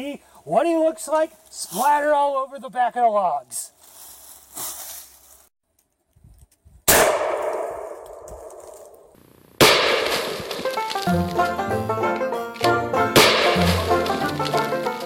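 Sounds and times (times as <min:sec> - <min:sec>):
shotgun firing: 0:06.9 - 0:11.6, 0:13.1 - 0:15.0
banjo music: 0:10.2 - 0:15.0.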